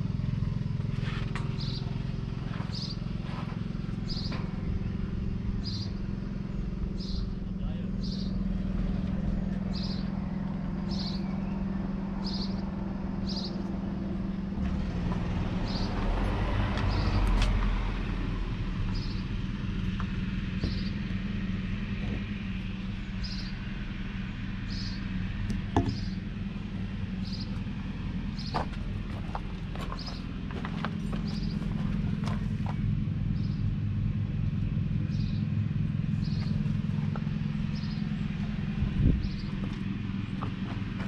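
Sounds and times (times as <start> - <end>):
tractor diesel engine idling: 0.0 - 41.0
small bird chirping: 4.0 - 4.4, 5.6 - 7.4, 9.7 - 10.1, 10.8 - 12.6, 20.6 - 21.1, 24.7 - 25.1, 27.2 - 27.6, 36.1 - 36.9, 37.6 - 38.3.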